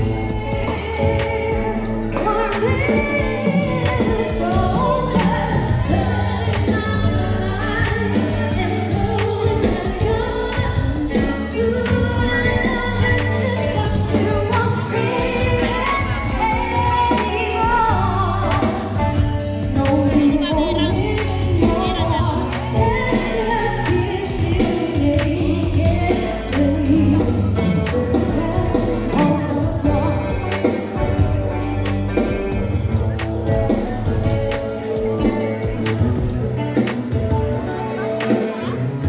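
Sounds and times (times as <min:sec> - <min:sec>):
women singing together: 0:00.0 - 0:19.0
music with bass and drums: 0:00.0 - 0:39.0.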